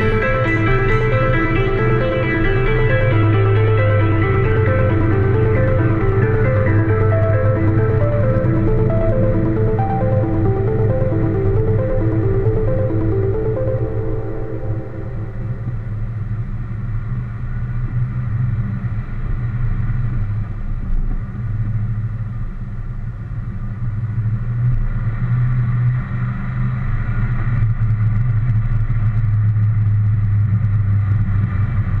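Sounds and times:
car engine running: 0.0 - 13.8.

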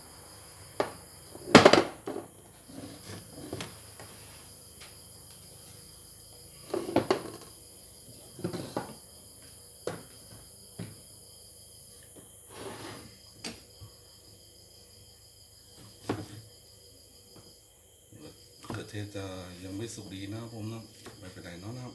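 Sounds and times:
kitchen things knocking on table: 0.8 - 2.3.

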